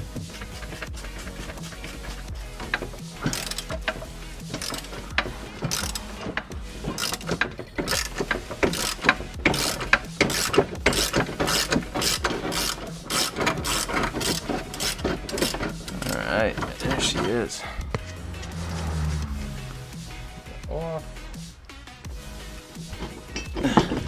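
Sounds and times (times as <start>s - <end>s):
ratchet wrench clicking: 0.3s - 18.8s.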